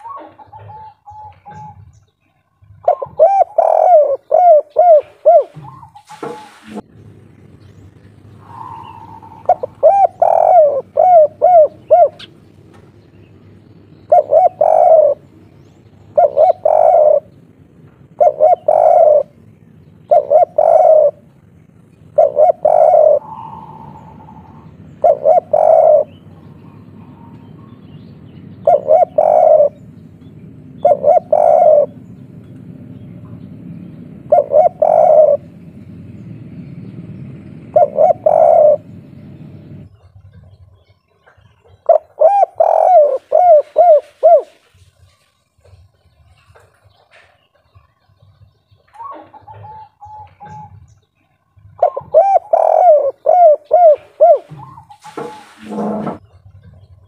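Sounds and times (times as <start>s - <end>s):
dove cooing: 0.0s - 6.8s, 8.2s - 12.4s, 13.7s - 32.5s, 34.1s - 36.2s, 37.5s - 40.6s, 41.3s - 45.0s, 48.9s - 50.9s, 51.5s - 56.2s.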